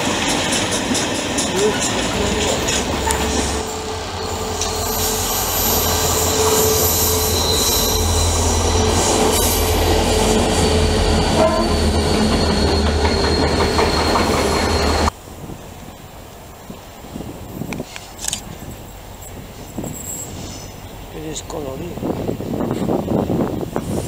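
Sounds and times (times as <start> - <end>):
diesel locomotive rumble: 0.0 - 24.0
thin high whine: 3.0 - 15.2.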